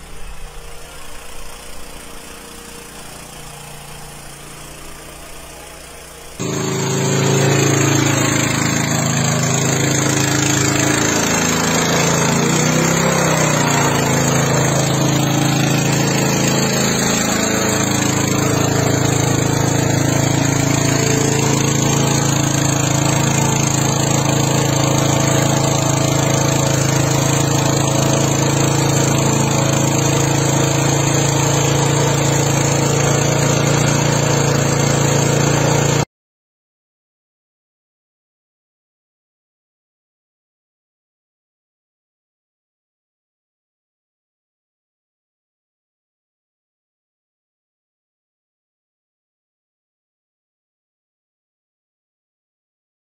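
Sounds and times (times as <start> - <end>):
engine running: 0.0 - 36.1.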